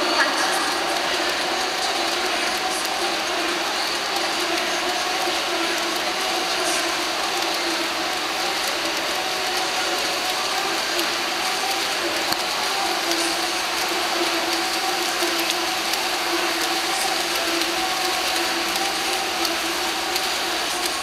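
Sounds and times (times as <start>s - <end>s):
crowd cheering indoors: 0.0s - 21.0s
sharp clicks of clapping: 0.0s - 21.0s.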